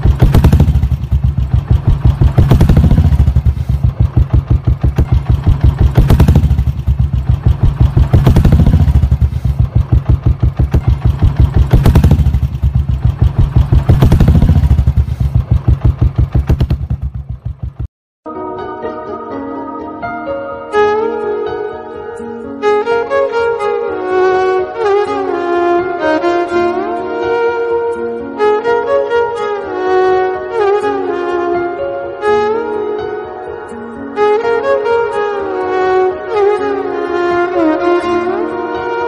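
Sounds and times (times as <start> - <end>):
motorcycle engine thumping: 0.0 - 17.9.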